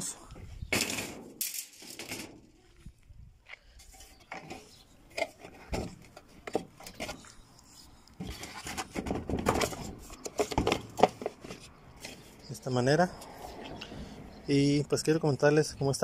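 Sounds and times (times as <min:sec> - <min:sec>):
plastic scraping: 0:03.9 - 0:12.4.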